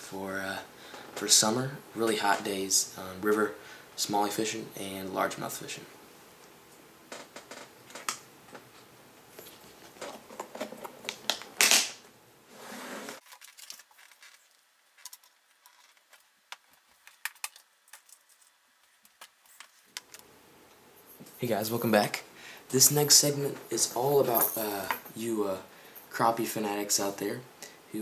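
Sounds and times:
handling clicks and rustles: 0:07.1 - 0:12.0, 0:13.1 - 0:20.3.

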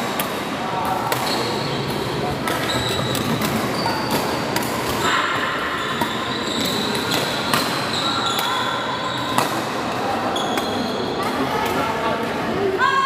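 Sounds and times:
shoes squeaking on court floor: 0:01.1 - 0:09.6, 0:10.3 - 0:11.4
racket hitting shuttlecock: 0:06.0 - 0:07.8.

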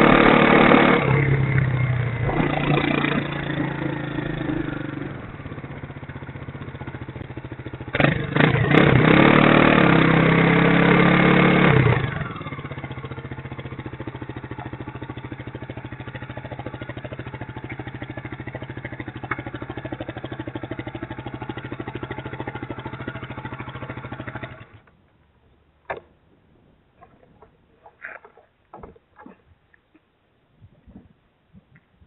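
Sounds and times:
motorcycle engine idling: 0:00.0 - 0:24.9.

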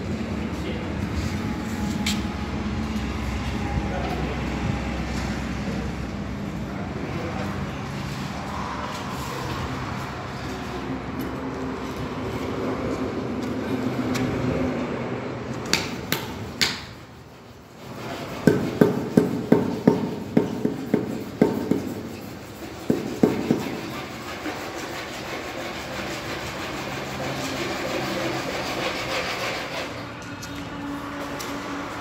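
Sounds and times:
steady background noise: 0:00.0 - 0:32.0
hammer knocking on stone slab: 0:18.4 - 0:22.0, 0:22.9 - 0:23.8.

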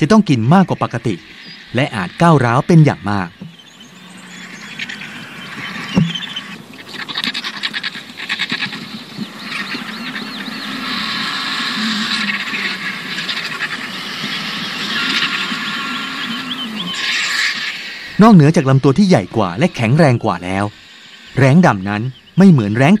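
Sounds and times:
vultures hissing and rattling: 0:00.0 - 0:21.7
thump: 0:06.0 - 0:06.2.

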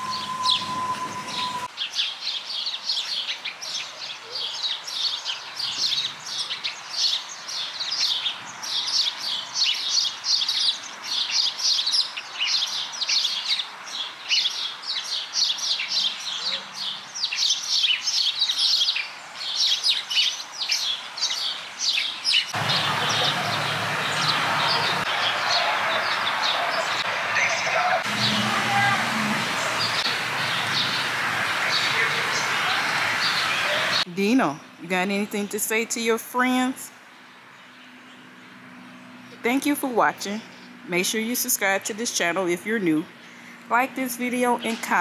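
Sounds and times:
songbirds chirping: 0:00.0 - 0:45.0
steady rushing noise with hum: 0:22.6 - 0:34.1.

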